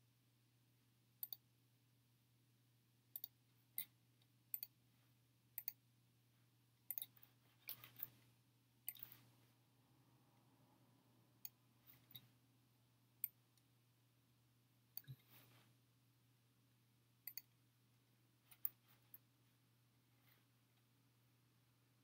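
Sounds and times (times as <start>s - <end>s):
computer mouse clicks: 1.2s - 1.4s, 3.1s - 4.8s, 5.6s - 5.8s, 6.9s - 8.2s, 8.9s - 9.2s, 15.0s - 15.3s, 17.2s - 17.6s.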